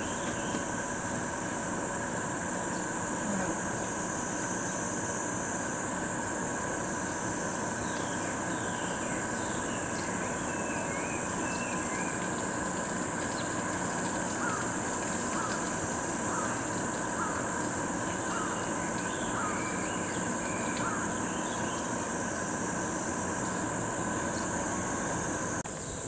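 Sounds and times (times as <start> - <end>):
bird chirps: 0.0 - 0.7, 7.8 - 12.4, 13.2 - 22.0
cicadas droning: 0.0 - 26.0.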